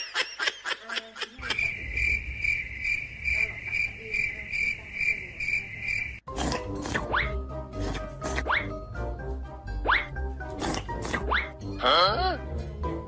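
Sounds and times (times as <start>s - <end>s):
person laughing: 0.0s - 1.7s
high insect chirping: 1.4s - 6.2s
music: 6.3s - 13.0s.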